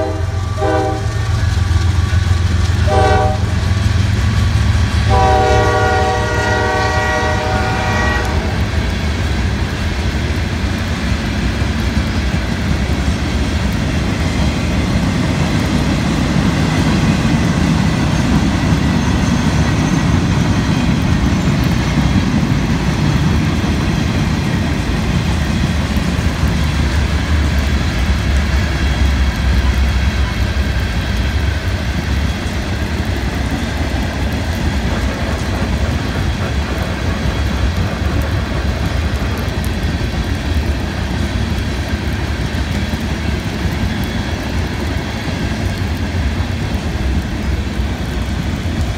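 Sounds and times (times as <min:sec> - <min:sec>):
locomotive horn: 0:00.0 - 0:03.8, 0:05.0 - 0:08.7
train wheels rumbling and clattering: 0:00.0 - 0:48.9.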